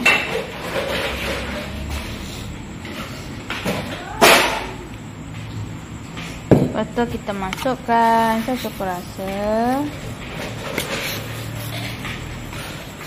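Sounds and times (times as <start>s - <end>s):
plastic spoon scraping and tapping: 7.4s - 10.0s.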